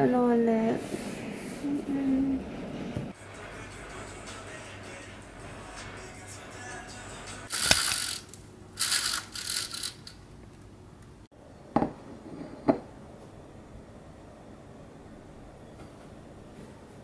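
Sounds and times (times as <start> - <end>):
rattling and clacking: 8.8 - 10.2.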